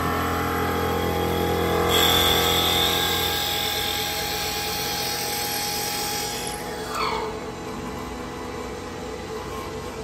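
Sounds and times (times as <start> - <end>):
high-pitched cutting whine: 0.0 - 7.6
lathe motors humming: 0.0 - 10.0.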